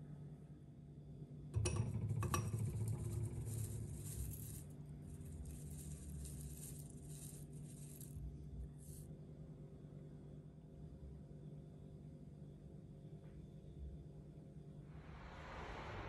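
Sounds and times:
dry herbs pouring rustle: 2.8s - 8.2s, 8.8s - 9.0s.

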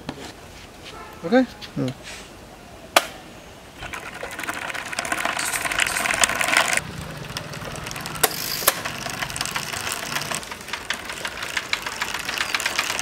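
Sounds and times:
drive chain rattling: 3.8s - 13.0s
starter motor whirring: 3.8s - 13.0s
sharp clicks: 5.4s - 13.0s.

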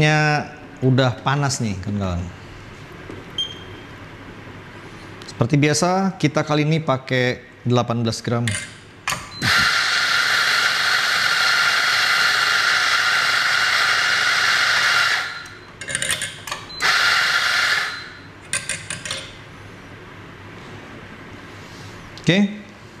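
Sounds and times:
coffee grinder whirring: 9.4s - 15.5s, 16.8s - 18.0s.

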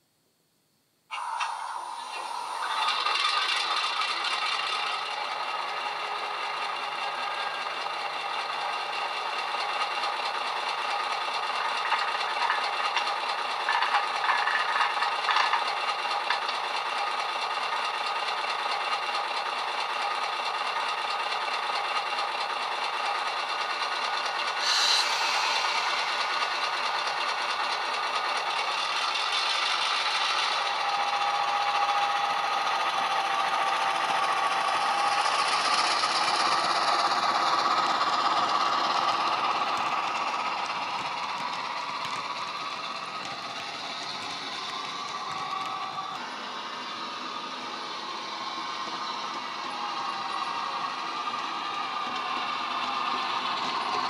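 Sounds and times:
diesel engine through small speaker: 1.1s - 54.0s
model train rattling on track: 1.1s - 54.0s
short sharp hiss: 24.6s - 26.0s.

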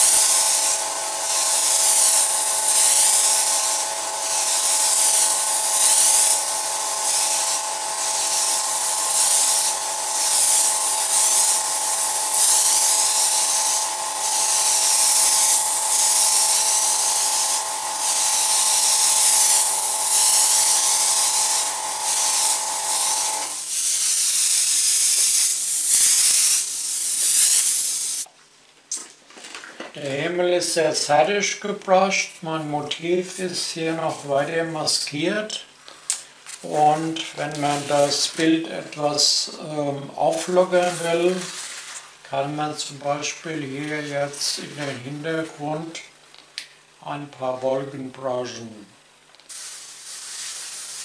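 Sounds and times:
air compressor humming: 0.0s - 28.3s
airbrush spraying air hiss: 0.0s - 28.3s, 36.0s - 42.2s, 49.4s - 51.0s.

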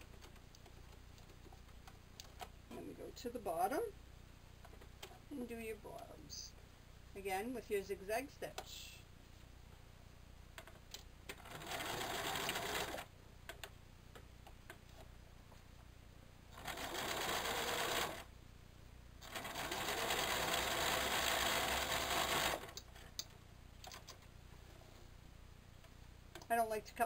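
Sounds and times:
sewing machine stitching: 11.3s - 13.1s, 16.5s - 18.3s, 19.2s - 22.8s.

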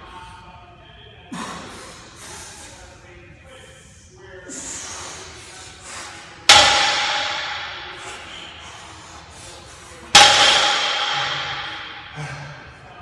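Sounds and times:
barbell clanging on floor: 6.5s - 8.1s.

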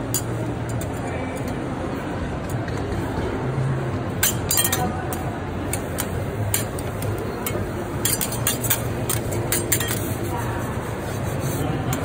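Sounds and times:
murmur of background chatter: 0.0s - 12.0s
metal spatulas clinking on griddle: 0.1s - 1.0s, 4.2s - 10.2s.

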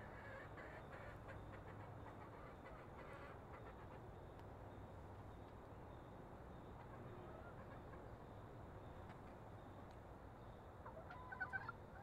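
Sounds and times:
hens clucking softly: 0.0s - 4.1s, 10.8s - 12.0s.

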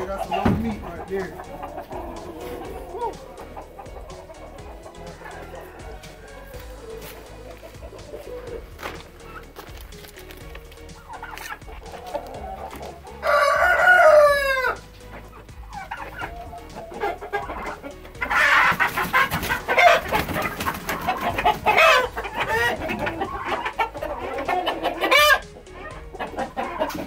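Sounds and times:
chickens squawking and clucking: 0.0s - 27.0s
rooster crowing: 4.3s - 8.6s, 13.0s - 14.8s
wings flapping: 18.6s - 22.0s.

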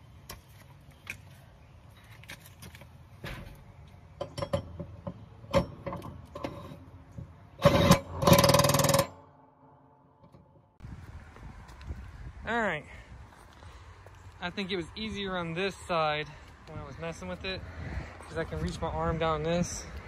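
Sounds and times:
metal clinks and knocks: 4.2s - 6.8s
impact wrench bursts: 7.6s - 9.1s.

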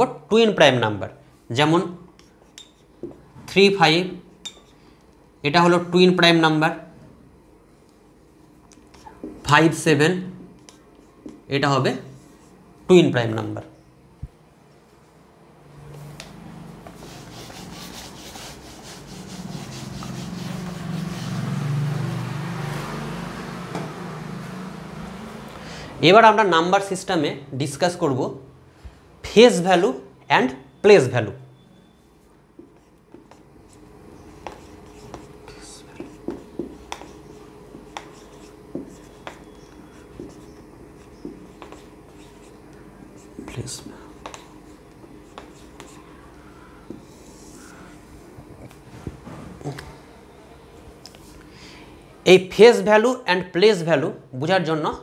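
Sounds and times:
eraser scrubbing whiteboard: 16.8s - 22.0s, 32.6s - 46.3s, 46.9s - 47.9s.

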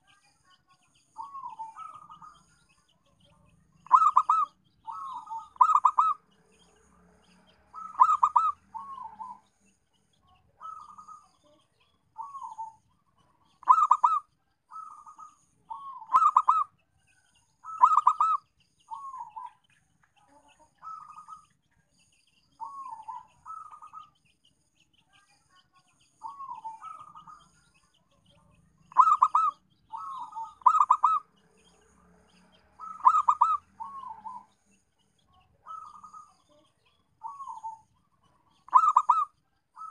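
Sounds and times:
dove cooing: 1.2s - 2.4s, 3.8s - 6.2s, 7.7s - 9.5s, 10.6s - 11.4s, 12.2s - 12.8s, 13.6s - 16.7s, 17.6s - 19.5s, 20.8s - 21.5s, 22.6s - 24.1s, 26.2s - 27.5s, 28.8s - 31.3s, 32.8s - 34.6s, 35.6s - 36.5s, 37.2s - 37.9s, 38.5s - 39.9s.

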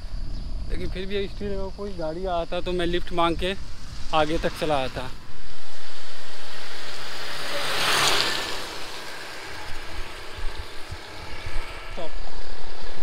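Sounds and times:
tyres hissing on wet road: 3.0s - 13.0s.

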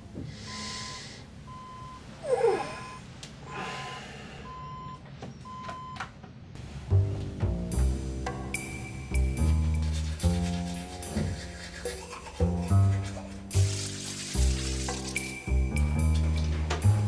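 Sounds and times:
sleepy groan: 2.2s - 4.4s
music: 6.7s - 17.0s.

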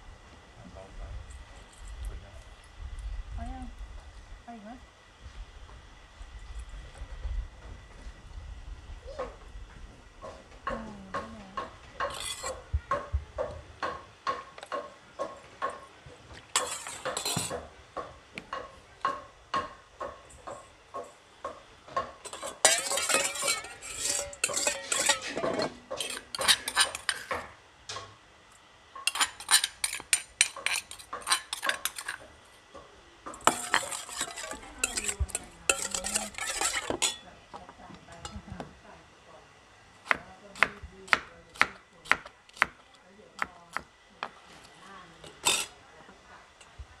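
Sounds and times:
metal ladle scraping bowl: 12.0s - 12.6s, 16.6s - 17.6s, 22.2s - 27.4s, 29.1s - 32.2s, 33.4s - 37.2s, 45.4s - 45.8s.

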